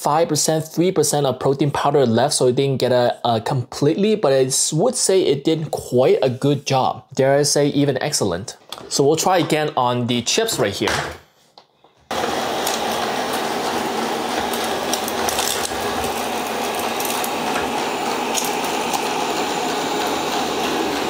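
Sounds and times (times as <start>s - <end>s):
robot vacuum whirring: 12.1s - 21.0s.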